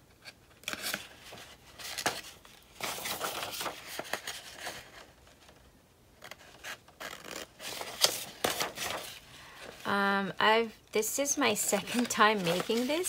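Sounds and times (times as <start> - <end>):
paper rustling: 0.6 - 5.6, 6.2 - 9.9, 11.6 - 13.0.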